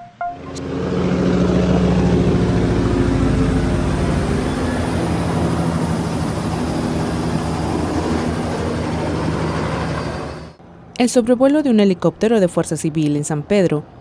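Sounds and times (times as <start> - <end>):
helicopter rotor beat: 0.0 - 10.6
low engine hum: 0.0 - 10.7.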